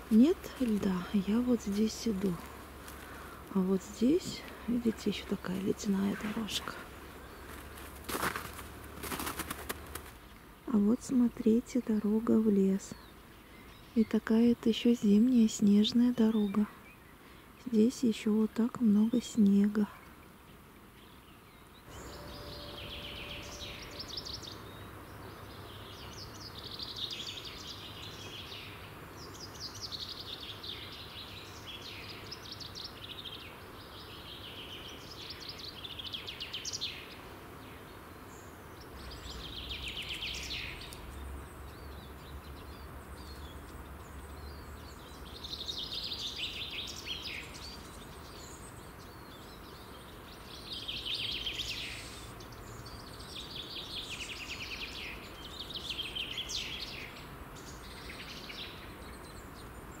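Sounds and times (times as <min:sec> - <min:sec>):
steady background hiss: 0:00.0 - 1:00.0
songbird trilling: 0:21.9 - 0:33.4.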